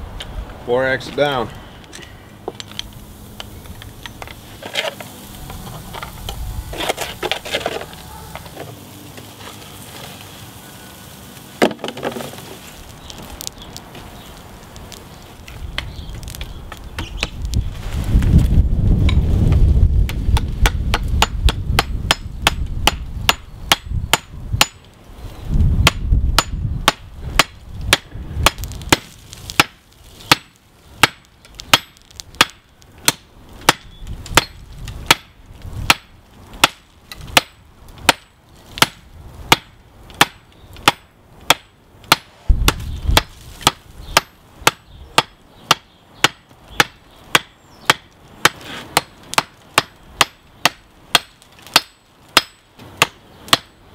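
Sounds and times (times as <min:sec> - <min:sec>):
hammer striking hot steel on anvil: 0:20.6 - 0:24.8, 0:25.8 - 0:29.0, 0:49.0 - 0:53.8.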